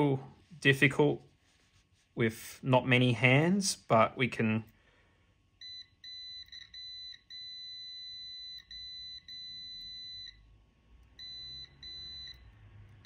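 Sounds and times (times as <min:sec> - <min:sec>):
multimeter beeping: 0:05.6 - 0:10.4, 0:11.2 - 0:12.5.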